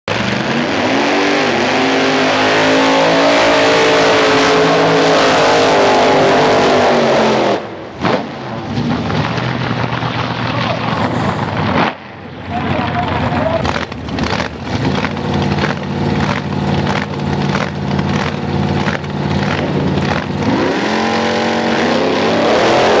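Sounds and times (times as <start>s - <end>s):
race engine at high revs: 0.1s - 8.5s, 12.6s - 23.0s
distant engines: 0.1s - 23.0s
tyres spinning: 12.6s - 20.7s.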